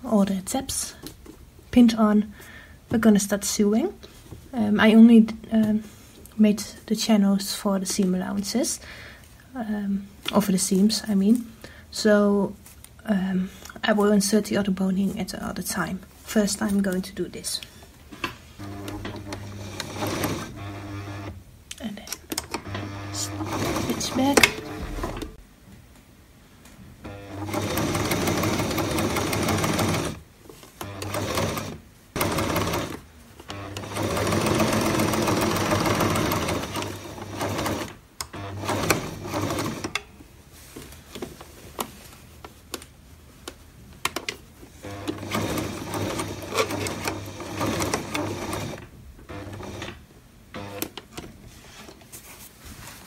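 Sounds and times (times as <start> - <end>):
sewing machine stitching: 18.6 - 21.4, 22.5 - 25.4, 27.1 - 30.2, 30.8 - 40.0, 44.8 - 50.0, 50.6 - 51.0.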